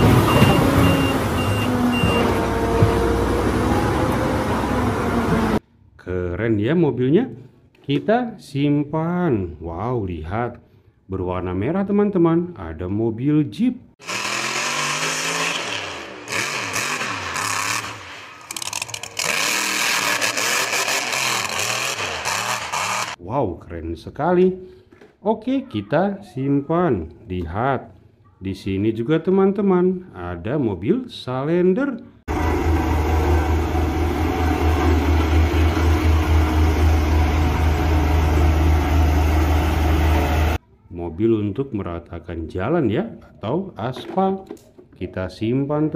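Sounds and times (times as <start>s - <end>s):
road roller diesel hum: 0.0s - 5.6s, 14.0s - 23.2s, 32.3s - 40.6s
truck engine revving: 0.0s - 5.6s, 14.0s - 23.2s, 32.3s - 40.6s
rattle of clicks: 18.5s - 19.3s.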